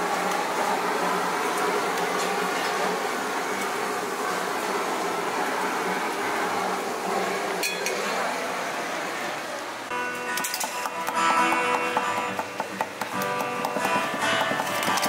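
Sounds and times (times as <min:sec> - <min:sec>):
mechanical hum: 0:00.0 - 0:15.0.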